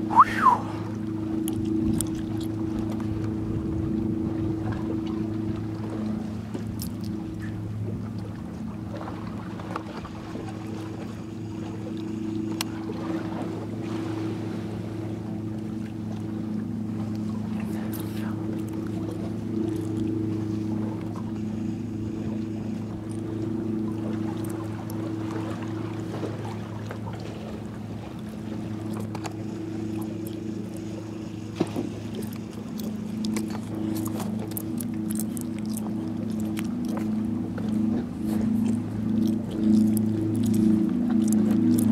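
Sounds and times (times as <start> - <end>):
boat engine humming: 0.0 - 41.9
water noise: 0.0 - 41.9
wind: 0.0 - 41.9.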